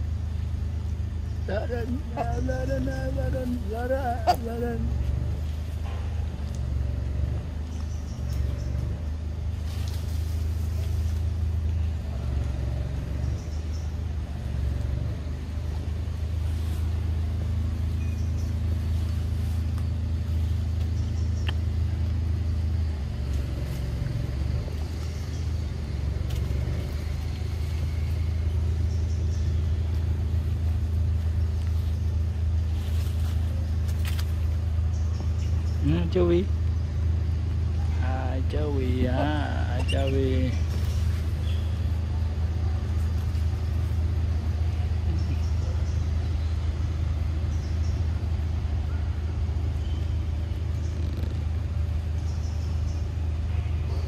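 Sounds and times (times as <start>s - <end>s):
low mechanical hum: 0.0s - 54.0s.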